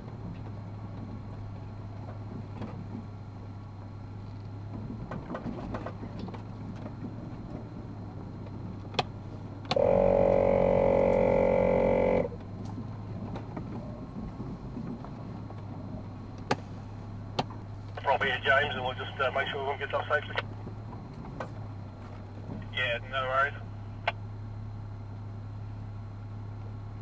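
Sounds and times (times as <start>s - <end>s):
vehicle engine rumble: 0.0s - 27.0s
loud flat buzzing tone: 9.7s - 12.4s.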